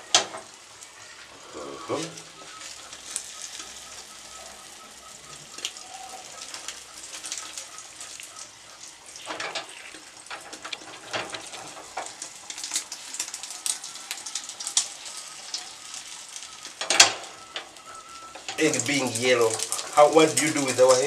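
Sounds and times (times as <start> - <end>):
egg sizzling in pan: 0.0 - 21.0.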